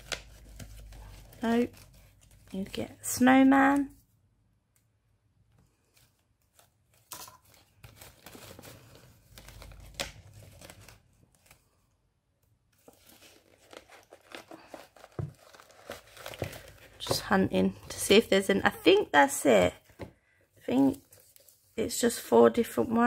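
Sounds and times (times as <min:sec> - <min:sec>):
plastic packaging crinkling: 0:06.8 - 0:11.6, 0:12.8 - 0:17.2.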